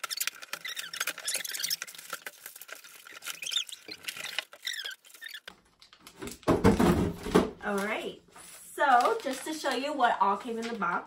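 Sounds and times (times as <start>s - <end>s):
short squeaks: 0.0s - 2.1s, 3.0s - 5.5s
cardboard boxes tearing: 0.0s - 5.4s
plastic packaging crinkling: 0.0s - 6.5s, 7.6s - 11.0s.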